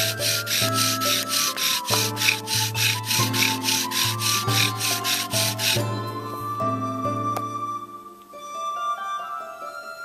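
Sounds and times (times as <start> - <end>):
wooden spindle rubbing on board: 0.0 - 5.9.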